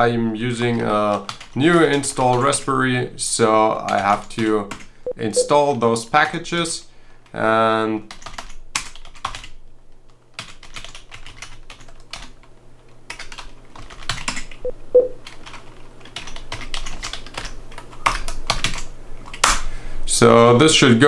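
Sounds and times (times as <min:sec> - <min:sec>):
keyboard typing: 0:10.4 - 0:12.3, 0:13.1 - 0:19.5
brief low tone: 0:14.7 - 0:15.2.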